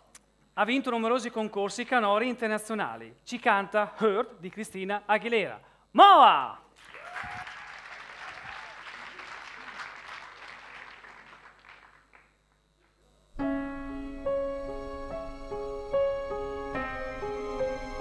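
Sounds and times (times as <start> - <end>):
audience applauding: 6.8 - 13.0
piano playing slow chords: 13.3 - 18.0.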